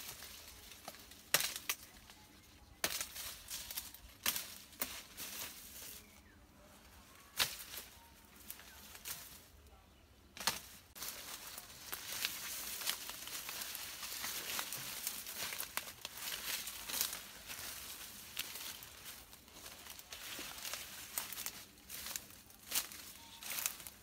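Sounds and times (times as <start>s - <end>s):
stalks snapping and crackling: 0.0s - 6.1s, 7.3s - 9.4s, 10.3s - 24.0s
dry leaves rustling and crinkling: 0.0s - 9.7s, 10.3s - 24.0s.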